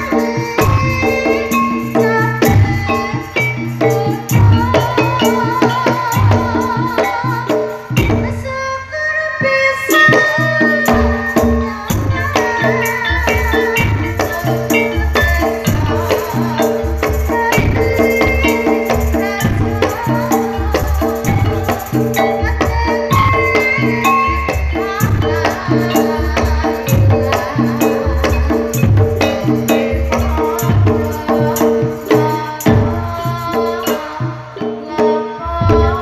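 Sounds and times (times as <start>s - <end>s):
steady drum beat: 0.0s - 8.6s, 9.9s - 36.0s
woman singing into microphone: 0.0s - 36.0s.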